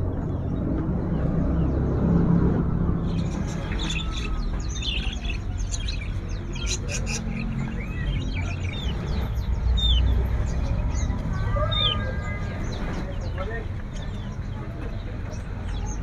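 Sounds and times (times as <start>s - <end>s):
low background rumble: 0.0s - 16.0s
birds chirping and whistling: 0.1s - 16.0s.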